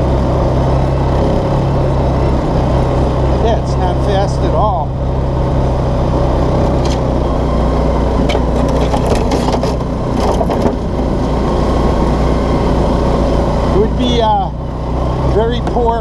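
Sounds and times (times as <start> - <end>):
utility vehicle engine running: 0.0 - 16.0
body knocks and rattles: 8.3 - 10.9.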